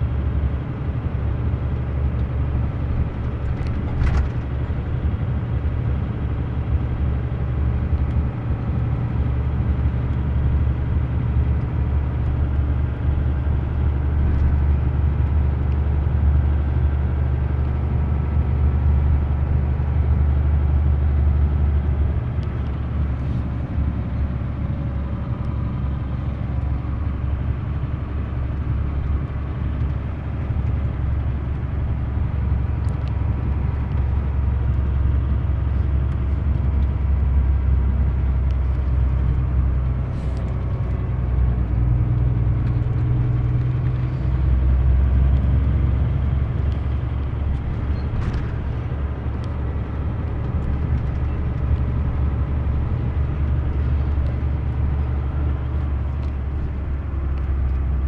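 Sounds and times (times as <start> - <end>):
vehicle engine and road rumble: 0.0 - 58.0.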